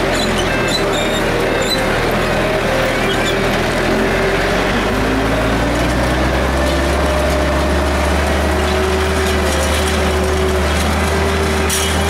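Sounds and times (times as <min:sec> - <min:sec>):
tractor engine running under load: 0:00.0 - 0:12.0.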